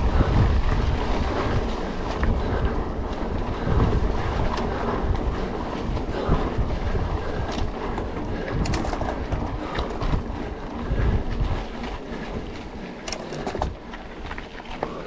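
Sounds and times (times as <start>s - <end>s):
wind buffeting microphone: 0.0s - 15.0s
bike clicks and knocks: 7.3s - 15.0s.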